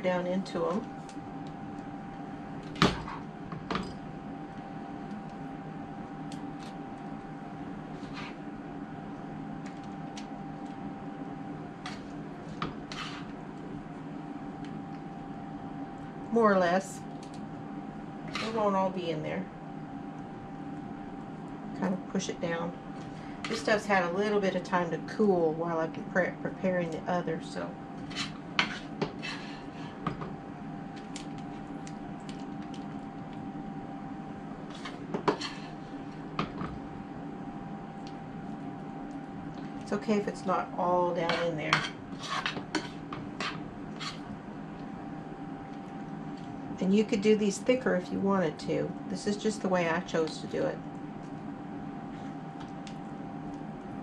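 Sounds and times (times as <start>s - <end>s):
steady background hum: 0.0s - 54.0s
spoon scraping and knocking skillet: 12.6s - 13.4s, 28.0s - 30.3s, 34.7s - 35.8s, 41.2s - 44.3s.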